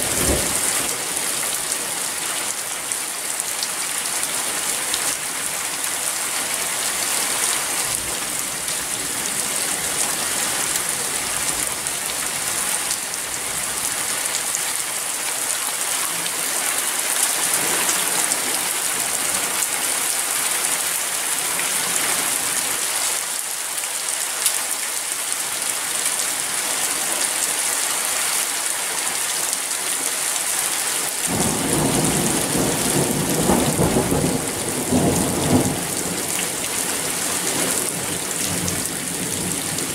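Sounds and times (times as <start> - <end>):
thunder rumbling: 0.0 - 1.2, 31.3 - 36.6
heavy rain falling: 0.0 - 39.9.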